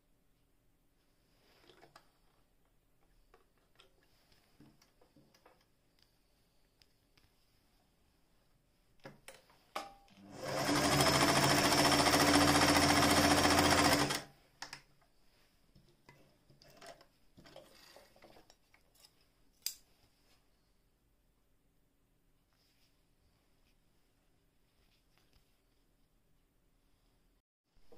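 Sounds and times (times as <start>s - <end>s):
sewing machine stitching: 10.2s - 14.3s.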